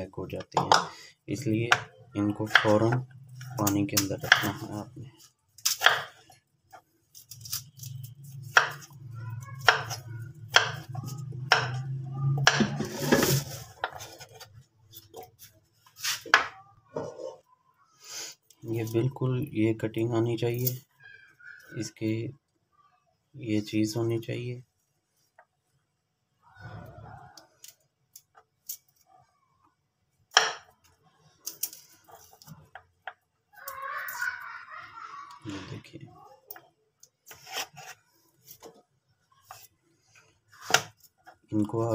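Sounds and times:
knife chopping on wooden board: 9.6s - 11.8s
knife tapping on wooden board: 11.5s - 11.8s.

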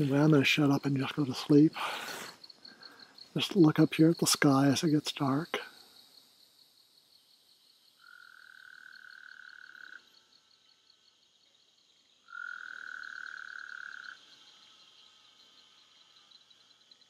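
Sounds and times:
insects chirring: 0.0s - 17.0s
frog trilling: 8.0s - 10.1s, 12.2s - 14.2s.

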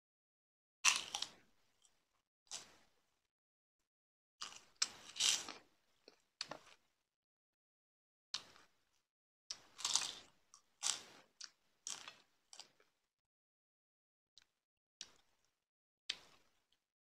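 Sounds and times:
crunching and chewing food: 0.9s - 3.0s, 4.4s - 6.9s, 8.4s - 13.1s, 14.4s - 16.8s.

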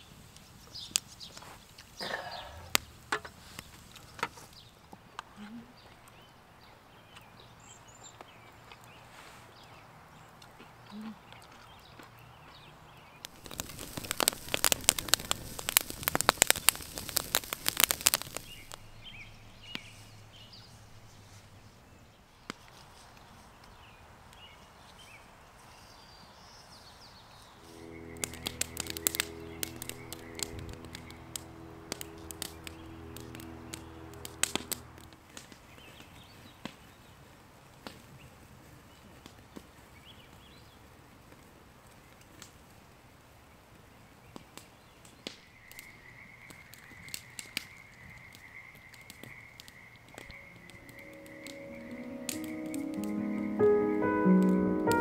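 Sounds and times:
campfire crackling and popping: 0.0s - 5.3s, 11.4s - 20.4s, 27.6s - 40.5s, 41.1s - 55.0s
low steady hum: 27.6s - 35.6s.

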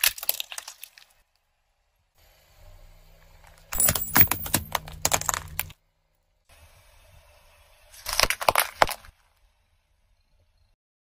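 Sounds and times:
squeeze balls crunching: 0.0s - 1.3s, 8.0s - 9.2s.

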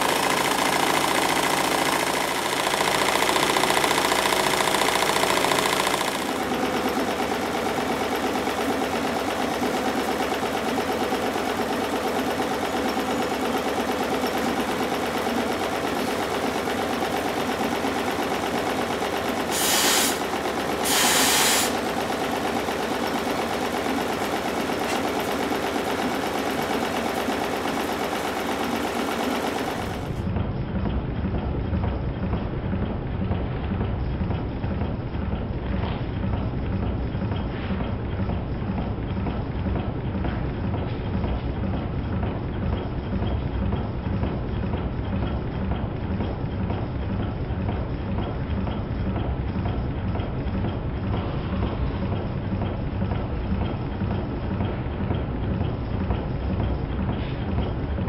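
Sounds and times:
model steam engine clattering: 0.0s - 58.0s
steam hissing: 19.4s - 22.0s.

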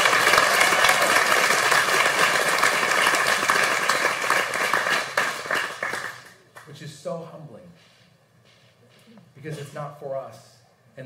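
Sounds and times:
congregation applauding: 0.0s - 6.7s.

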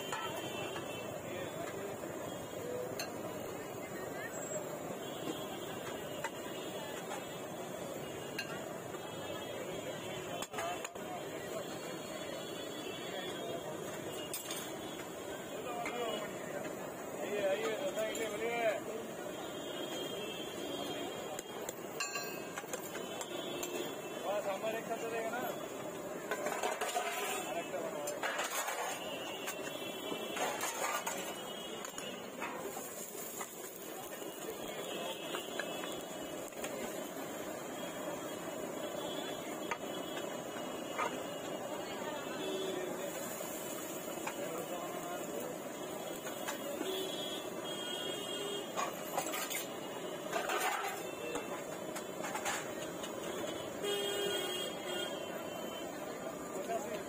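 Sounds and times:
crowd hubbub: 0.0s - 57.0s
metal utensils clinking on pots: 2.9s - 3.2s, 8.4s - 8.7s, 13.9s - 14.8s, 22.0s - 23.8s, 26.2s - 29.7s, 30.3s - 33.9s, 50.3s - 53.6s
utensils clinking: 22.0s - 22.8s.

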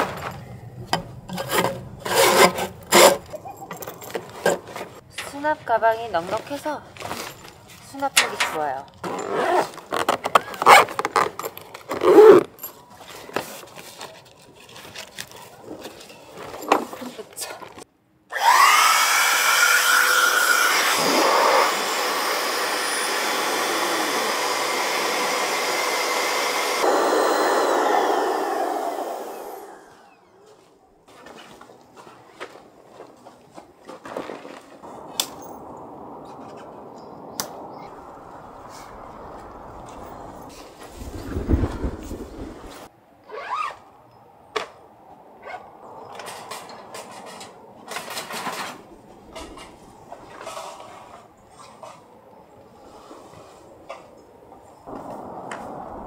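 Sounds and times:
tent fabric rustling: 9.0s - 17.3s
steady rushing noise: 34.8s - 42.9s, 54.4s - 56.0s.

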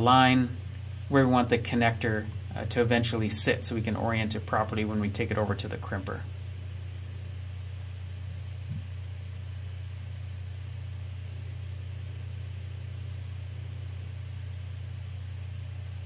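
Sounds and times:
steady low hum: 0.0s - 16.0s
soft bump: 8.6s - 8.9s.

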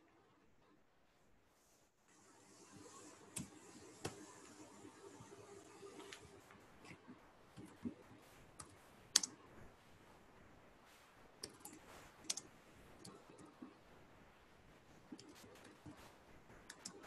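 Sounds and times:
keyboard keystrokes: 8.6s - 9.4s, 11.4s - 13.6s.

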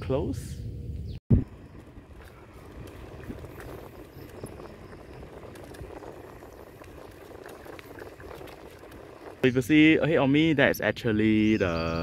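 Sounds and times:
wind on microphone: 1.0s - 10.1s
bike tyres rumbling on asphalt: 1.4s - 10.5s
faint crackle and ticks: 1.6s - 9.6s.

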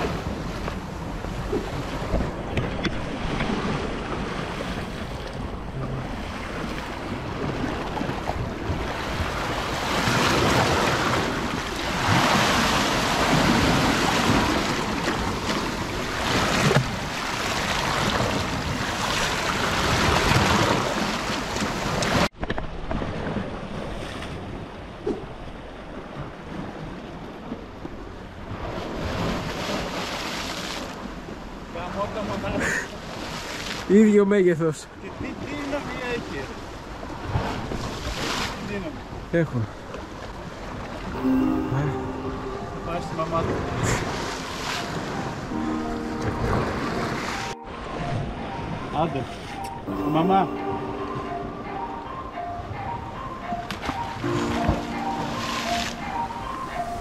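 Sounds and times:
surf washing over rocks: 0.0s - 24.5s.

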